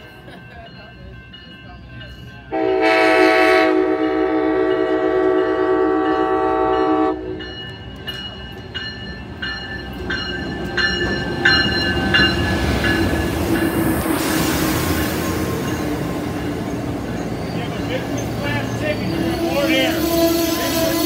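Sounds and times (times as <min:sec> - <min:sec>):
crossing bell ringing: 0:00.0 - 0:21.0
train rumbling: 0:00.0 - 0:21.0
locomotive horn blast: 0:02.5 - 0:07.4.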